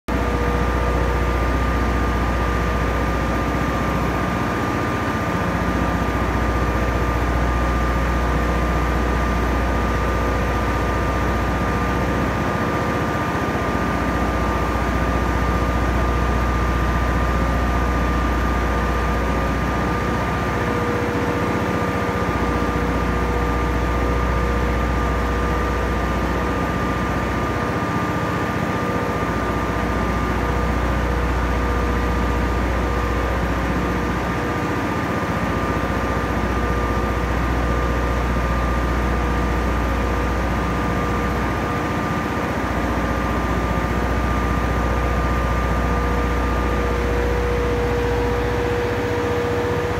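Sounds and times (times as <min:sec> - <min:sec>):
generator engine droning: 0:00.1 - 0:49.9
high whine: 0:44.7 - 0:49.9.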